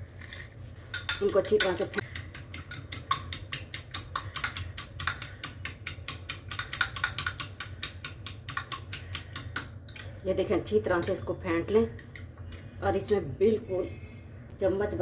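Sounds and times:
fork clicking against bowl: 1.0 - 10.1.

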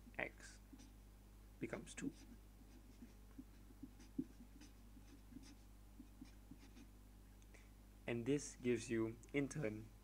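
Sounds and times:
marker pen writing on paper: 2.0 - 6.9.

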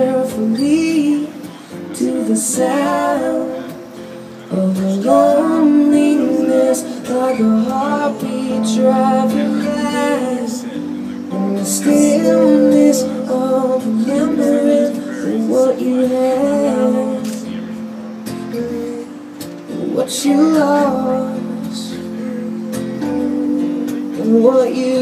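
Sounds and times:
woman singing: 0.0 - 17.7, 18.5 - 22.9, 24.1 - 25.0
strummed acoustic guitar: 0.0 - 25.0
keyboard playing: 5.0 - 25.0.

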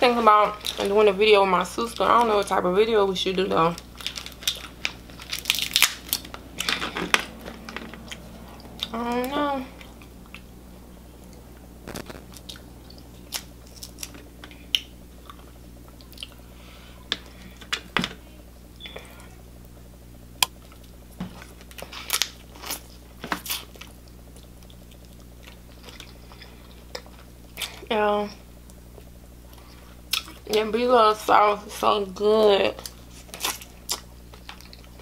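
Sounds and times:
crab shells snapping: 4.0 - 6.8
chewing: 23.4 - 27.7, 29.0 - 30.4, 32.8 - 35.0.

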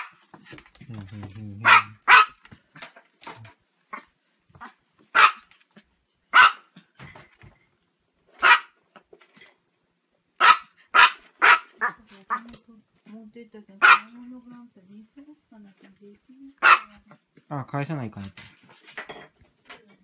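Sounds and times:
small dog barking: 1.6 - 2.4, 4.6 - 5.5, 6.3 - 6.8, 8.4 - 8.8, 10.4 - 12.4, 13.8 - 14.2, 16.6 - 17.2.

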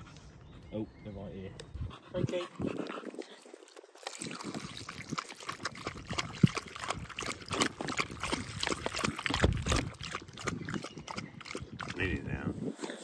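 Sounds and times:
dog lapping water: 2.2 - 12.5
water trickling into bowl: 2.8 - 12.3.

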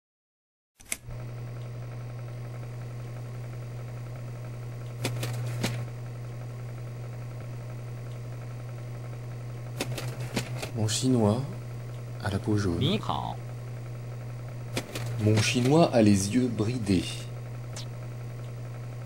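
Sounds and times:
sharp clicks: 0.8 - 1.7, 4.8 - 5.8, 9.8 - 10.7, 14.7 - 15.8
steady low hum: 1.0 - 19.0.

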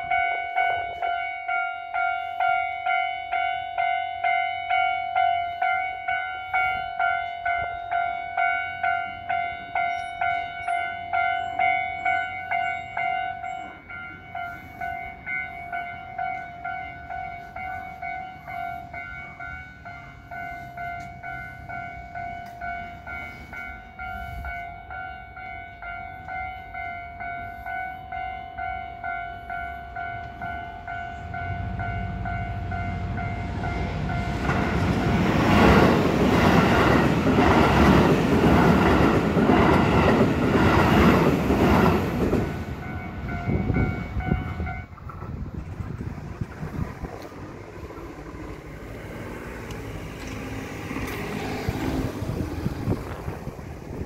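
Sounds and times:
level-crossing warning bell ringing: 0.0 - 45.2
train passing: 0.0 - 54.0
wheels clicking over rail joints: 32.2 - 54.0.

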